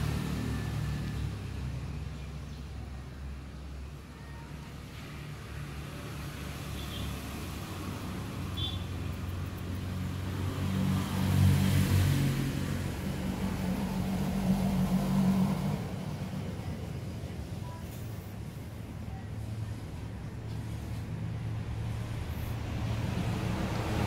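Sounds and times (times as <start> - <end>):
vehicle engine hum: 0.0 - 24.0.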